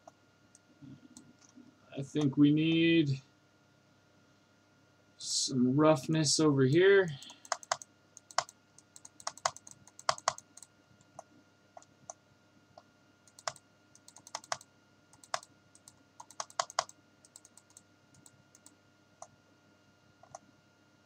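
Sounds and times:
faint steady hum: 0:00.0 - 0:21.0
keyboard and mouse clicking: 0:07.2 - 0:12.2, 0:13.3 - 0:19.3, 0:20.2 - 0:20.4.

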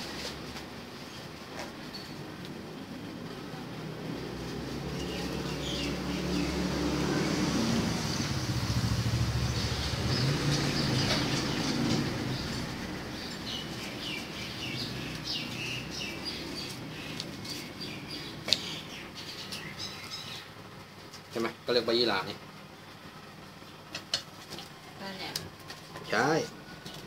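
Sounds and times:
vehicle engine passing: 0:03.0 - 0:20.7
small birds chirping: 0:04.2 - 0:24.0.

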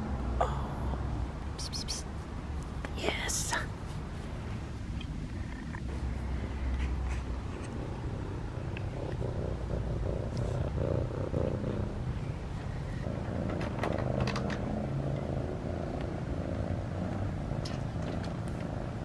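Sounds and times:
cat purring: 0:06.8 - 0:19.0.

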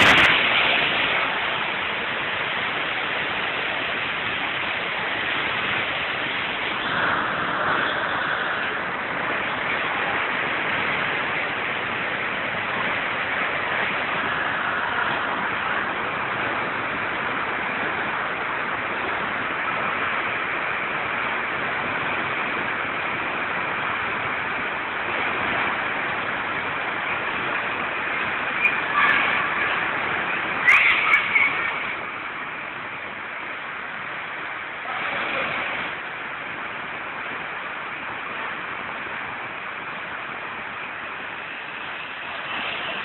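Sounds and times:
spring water rushing: 0:00.0 - 0:43.0.

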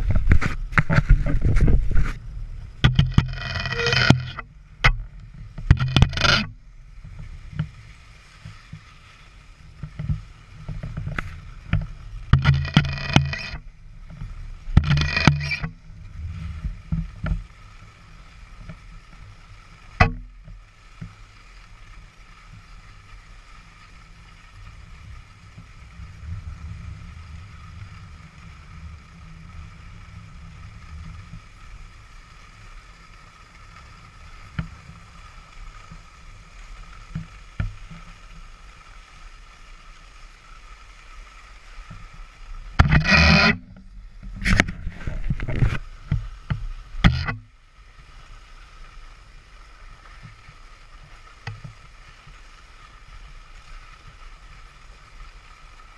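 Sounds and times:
skis sliding over snow: 0:00.0 - 0:04.4, 0:05.2 - 0:55.9
wind on microphone: 0:00.0 - 0:07.9, 0:09.7 - 0:17.6, 0:24.8 - 0:32.2, 0:42.7 - 0:47.5
loud harsh scraping: 0:02.8 - 0:04.5, 0:05.7 - 0:06.5, 0:12.4 - 0:13.6, 0:14.8 - 0:15.7, 0:42.8 - 0:43.8.

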